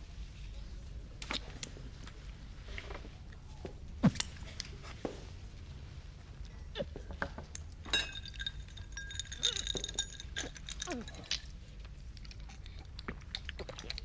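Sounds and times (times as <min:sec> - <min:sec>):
ringing glass clink: 0:07.9 - 0:11.1.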